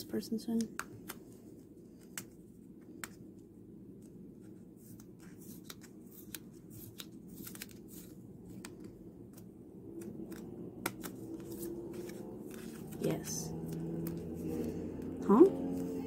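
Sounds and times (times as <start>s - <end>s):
low steady hum: 0.0s - 16.0s
paper envelope rustling and crinkling: 4.0s - 16.0s.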